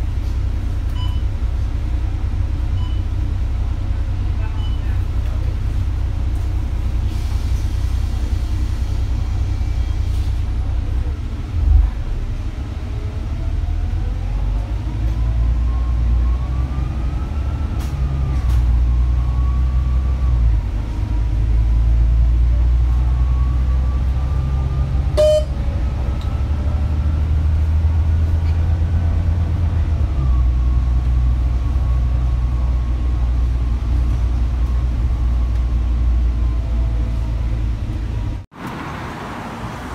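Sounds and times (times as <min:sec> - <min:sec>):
bus engine and road rumble: 0:00.0 - 0:39.9
rising engine whine: 0:11.6 - 0:39.9.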